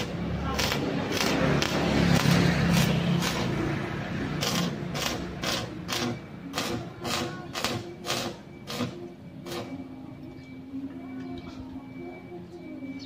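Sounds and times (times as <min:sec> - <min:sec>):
arc welding spurts: 0:00.0 - 0:09.8.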